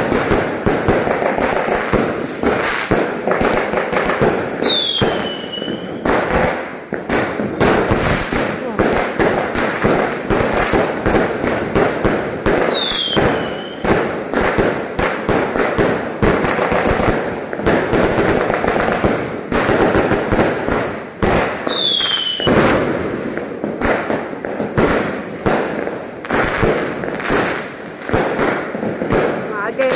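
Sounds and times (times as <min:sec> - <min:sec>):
fireworks bangs and crackling: 0:00.0 - 0:29.9
falling firework whistle: 0:04.6 - 0:06.0, 0:12.7 - 0:13.8, 0:21.7 - 0:22.6.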